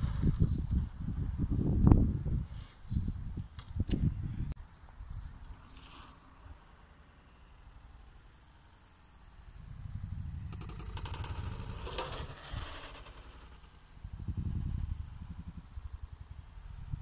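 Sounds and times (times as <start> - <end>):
wind rumble on microphone: 0.0 - 5.5, 9.3 - 17.0
bike rolling over dirt: 9.8 - 15.6.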